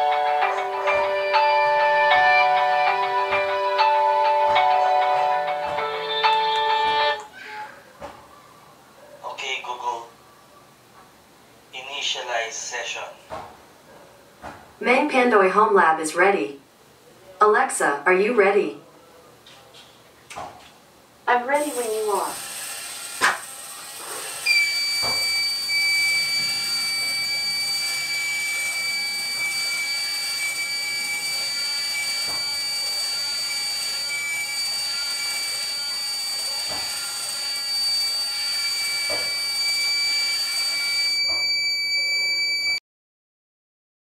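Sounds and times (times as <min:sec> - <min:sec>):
high-pitched buzzer tone: 0:24.3 - 0:42.8.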